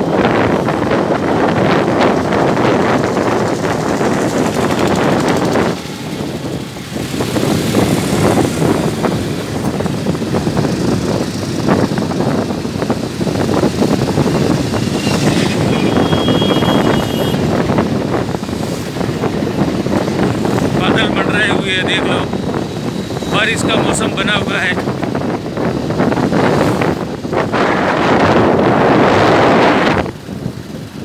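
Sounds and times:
motorcycle engines: 0.0 - 31.0
road traffic: 0.0 - 31.0
wind rushing over microphone: 0.0 - 31.0
steady high horn tone: 15.6 - 17.4.

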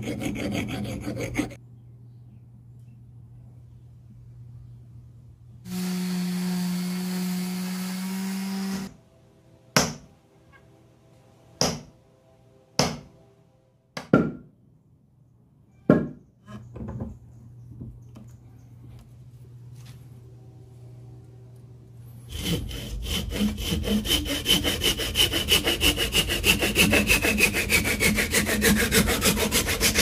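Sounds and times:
power tool humming: 5.7 - 8.9.

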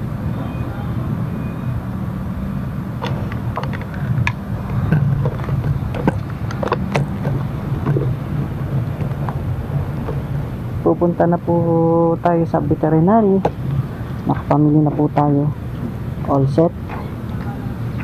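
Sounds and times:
camera clicks and knocks: 3.0 - 8.1.

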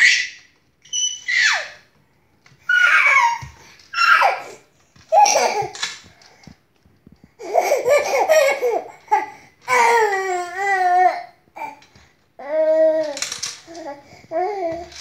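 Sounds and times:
baby giggling: 7.4 - 9.3.

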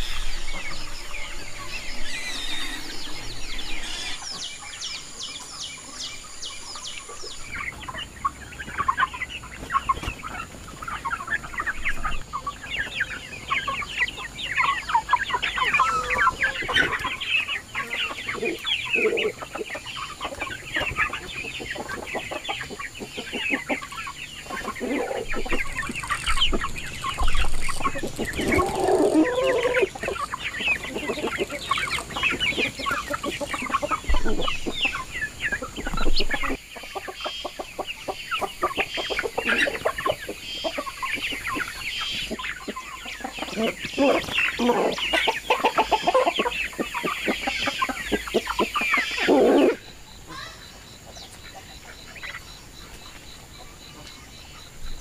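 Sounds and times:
chickens clucking: 0.0 - 55.0
loud low chicken call: 28.4 - 30.0, 49.0 - 50.4.

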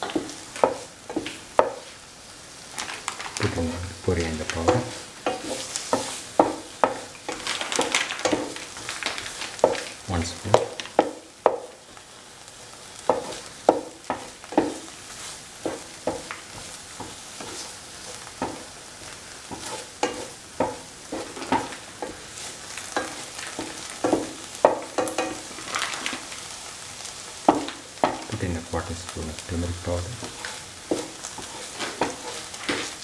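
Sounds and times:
paste sizzling in oil: 0.0 - 33.0
spatula scraping a pan: 3.4 - 9.9, 13.0 - 28.3, 29.1 - 33.0.

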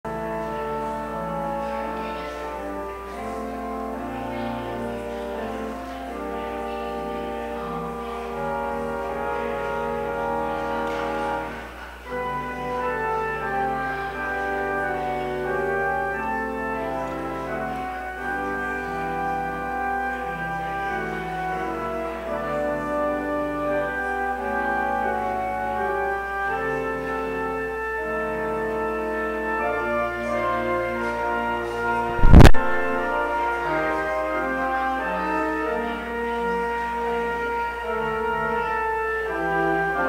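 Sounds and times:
slow keyboard chords: 32.1 - 34.6.

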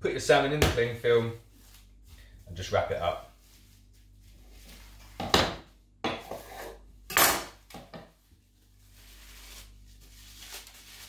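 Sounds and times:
cling film rustling and crinkling: 8.4 - 11.0.

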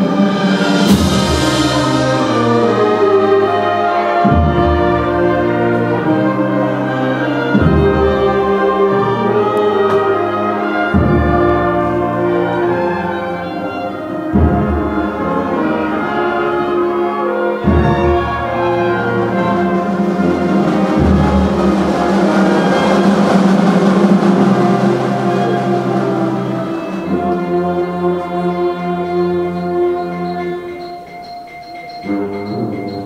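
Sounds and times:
brass and woodwind band playing: 0.0 - 33.0.

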